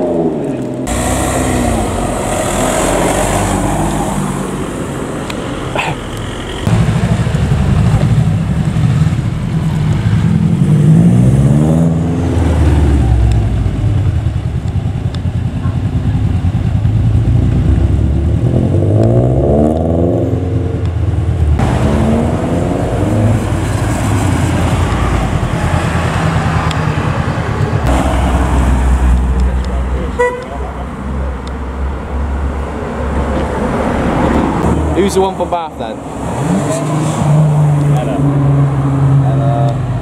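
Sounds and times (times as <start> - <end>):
car engine revving hard: 0.0 - 4.6, 6.6 - 13.4, 17.0 - 20.9, 21.6 - 29.4, 33.6 - 40.0
another car passing: 0.0 - 5.7, 17.2 - 40.0.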